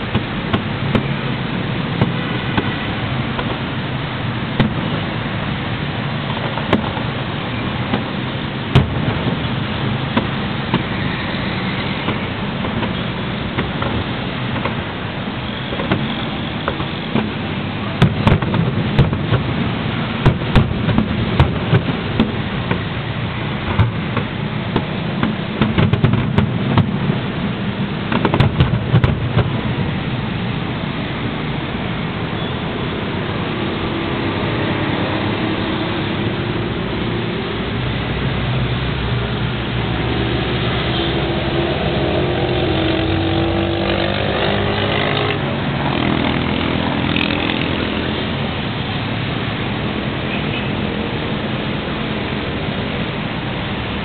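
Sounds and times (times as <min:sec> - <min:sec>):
firework shells bursting: 0:04.5 - 0:05.1, 0:07.8 - 0:09.4, 0:10.0 - 0:11.0, 0:12.0 - 0:14.9, 0:15.7 - 0:23.0, 0:23.6 - 0:27.2, 0:28.0 - 0:29.7.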